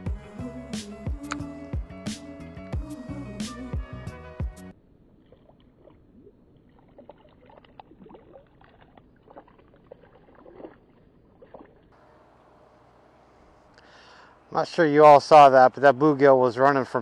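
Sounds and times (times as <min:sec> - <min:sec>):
small water plops and splashes: 0:05.1 - 0:12.0
low outdoor hiss: 0:12.0 - 0:17.0.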